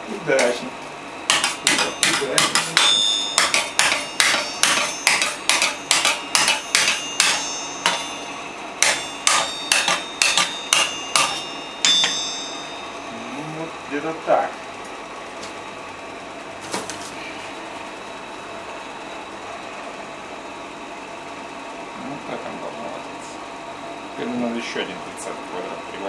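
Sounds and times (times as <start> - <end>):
hammer ringing on anvil: 1.3 - 14.2.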